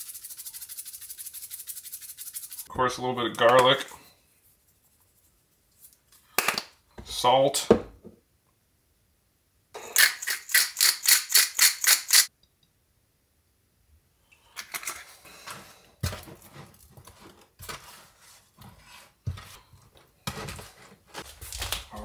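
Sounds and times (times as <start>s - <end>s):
hands rubbing wet meat: 0.0s - 2.7s
salt shaker rattling: 0.0s - 2.7s, 10.0s - 12.3s.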